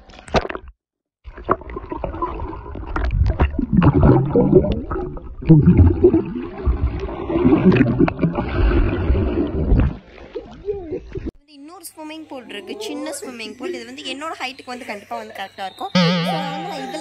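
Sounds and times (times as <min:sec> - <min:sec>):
water churned by swimmer: 0:00.0 - 0:11.3
gurgling bubbles: 0:01.3 - 0:11.3.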